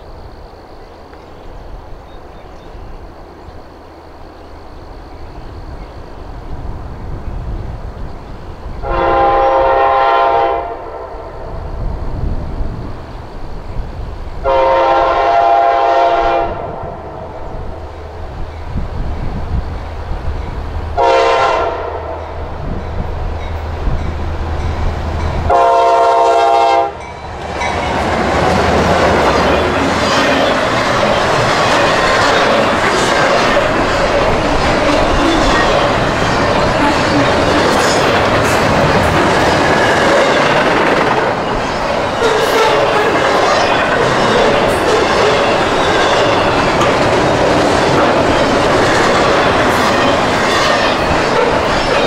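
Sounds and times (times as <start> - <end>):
train passing clatter: 0.0 - 52.0
locomotive air horn blasts: 8.8 - 11.2, 14.4 - 17.0, 21.0 - 22.2, 25.5 - 27.1
diesel engines rumbling: 27.1 - 51.8.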